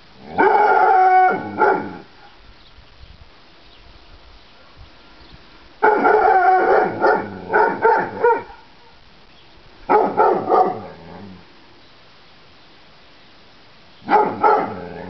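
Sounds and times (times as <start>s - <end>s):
dog barking: 0.4s - 2.0s, 5.8s - 8.7s, 9.9s - 10.9s, 14.1s - 14.9s.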